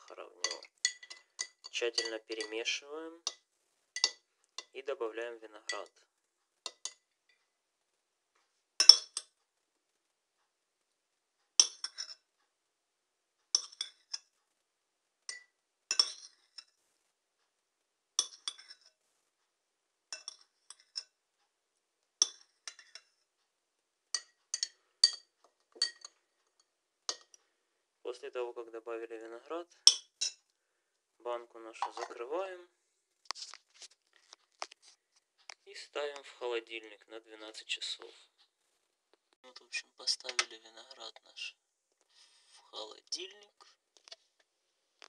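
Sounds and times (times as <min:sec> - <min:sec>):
spoon clinking on ceramic and glass: 0:00.4 - 0:02.6, 0:04.0 - 0:04.7, 0:06.6 - 0:07.0, 0:08.8 - 0:09.4, 0:11.6 - 0:12.2, 0:13.5 - 0:14.3, 0:15.3 - 0:16.7, 0:18.2 - 0:18.9, 0:20.1 - 0:21.2, 0:22.2 - 0:23.2, 0:24.1 - 0:27.4, 0:29.8 - 0:30.4.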